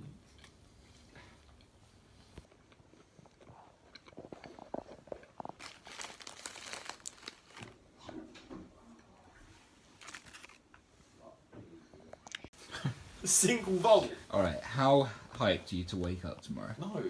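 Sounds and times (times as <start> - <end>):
crunching and crinkling handling noises: 2.5 - 8.4, 9.8 - 10.8.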